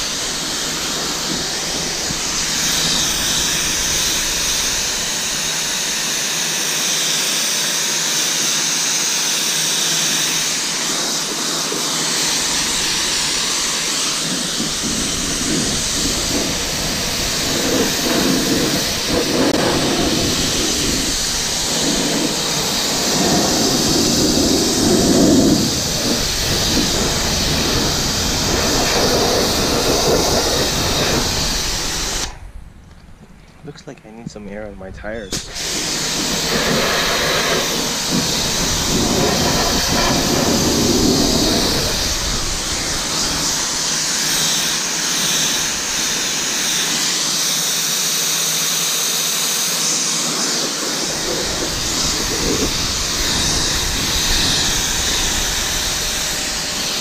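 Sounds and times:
pressure washer spraying: 0.0 - 32.4, 35.3 - 57.0.

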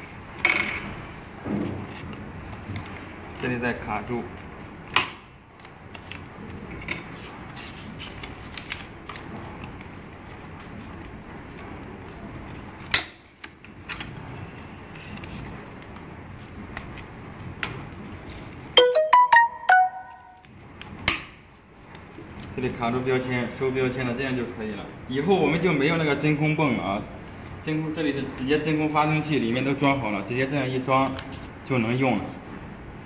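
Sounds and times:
electronic ringtone tune: 18.8 - 20.4.

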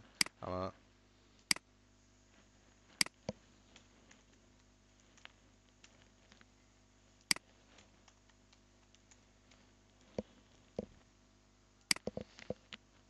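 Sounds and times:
keyboard and mouse clicks: 11.8 - 12.8.

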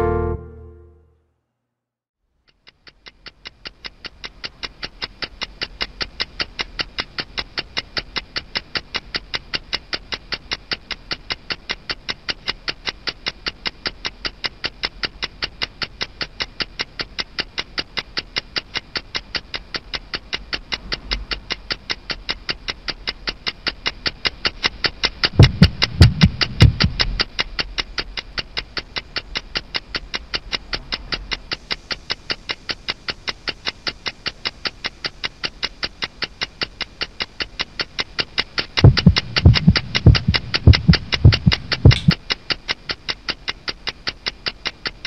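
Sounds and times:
ticking beat music: 13.3 - 31.5, 34.1 - 45.0
loud low thumps: 25.4 - 27.0, 38.8 - 42.2.

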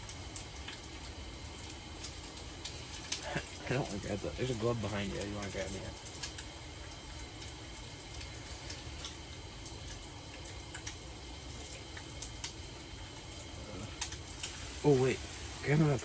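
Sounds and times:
fish frying in hot oil: 0.0 - 16.0.

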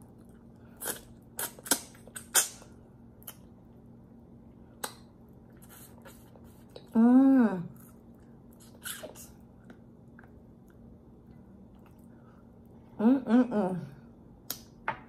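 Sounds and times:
wet lip and tongue smacks: 0.8 - 3.5, 4.8 - 6.9.

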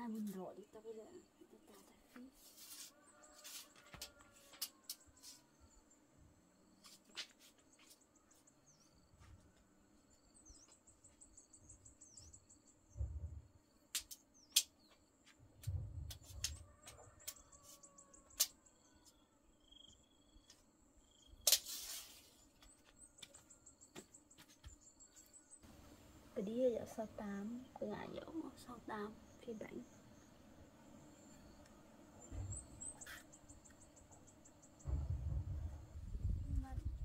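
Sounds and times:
tape measure snapping back: 21.4 - 22.2
soft low thuds: 34.8 - 37.0.

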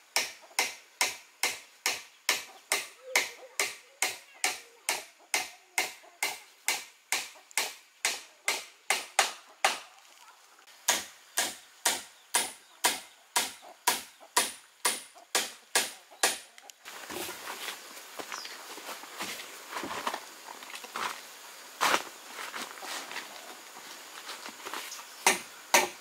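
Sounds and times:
rustling: 16.8 - 25.3.

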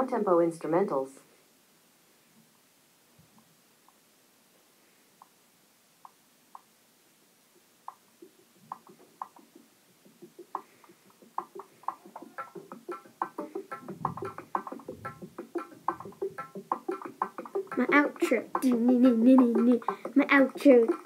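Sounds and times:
downtempo instrumental music: 8.3 - 21.0.

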